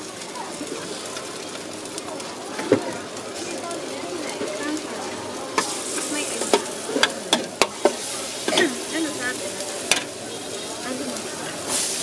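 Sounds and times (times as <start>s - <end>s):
noodles sizzling in a wok: 0.0s - 12.0s
spatula clanking against wok: 6.4s - 8.8s.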